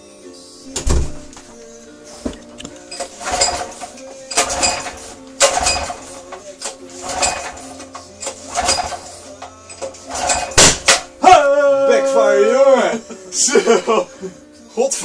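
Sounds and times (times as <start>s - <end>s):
engine pull-start cranking: 2.9s - 11.1s.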